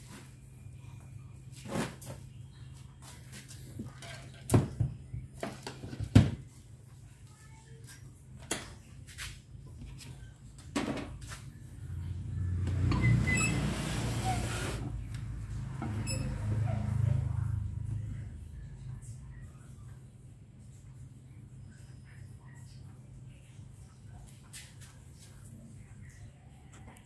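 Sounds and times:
low steady hum: 6.6s - 24.2s
circuit board scraping on bench: 12.3s - 16.9s.

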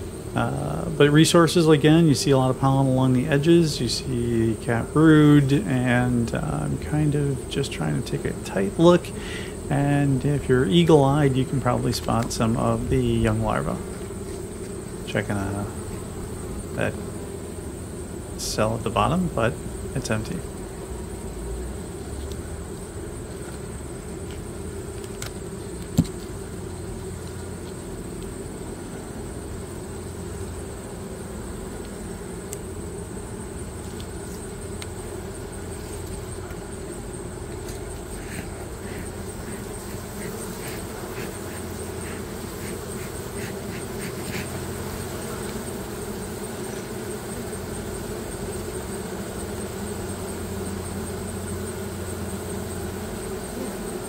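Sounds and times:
honey bees humming: 0.0s - 54.0s
faint ticks: 22.2s - 23.6s, 31.8s - 32.7s, 33.9s - 35.0s.

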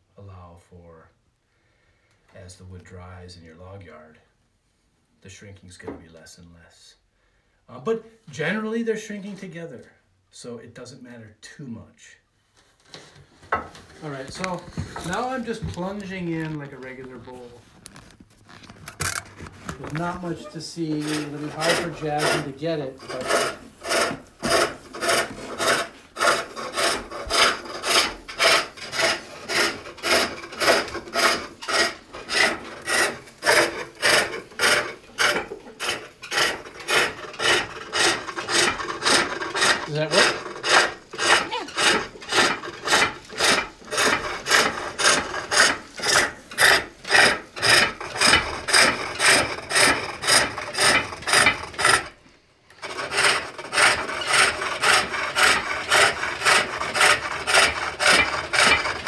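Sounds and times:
hook tool rasping into wood: 19.8s - 52.2s, 52.8s - 59.0s.

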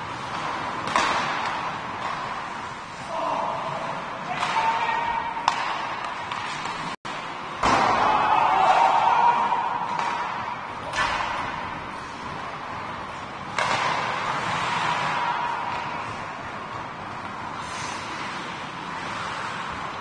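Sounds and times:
puck hitting the boards: 0.2s - 2.5s, 4.2s - 11.8s, 13.5s - 16.1s.

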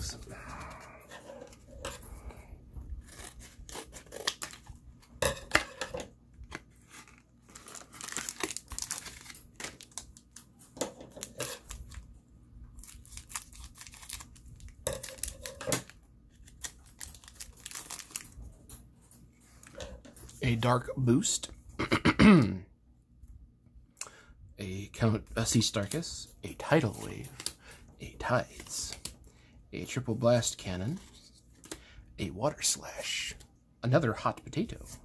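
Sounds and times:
foil pack tearing and crinkling: 3.0s - 4.7s, 6.9s - 10.3s, 12.8s - 18.4s.

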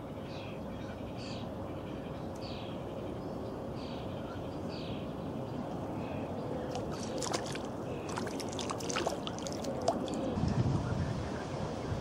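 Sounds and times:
fish splashing in water: 6.7s - 10.4s.

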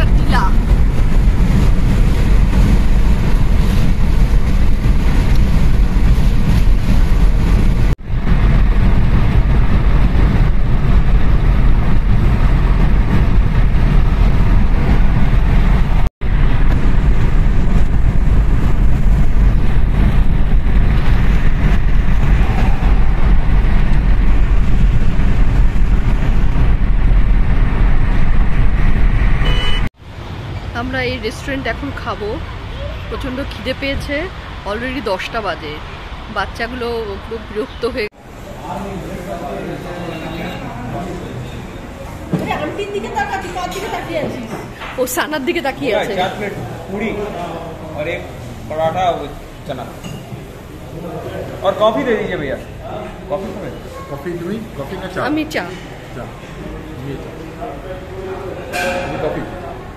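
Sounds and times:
car tyre and wind rumble: 0.0s - 40.0s.

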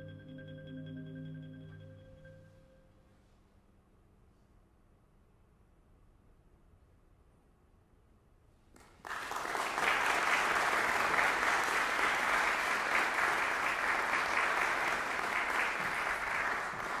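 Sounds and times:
audience applauding: 8.8s - 17.0s.

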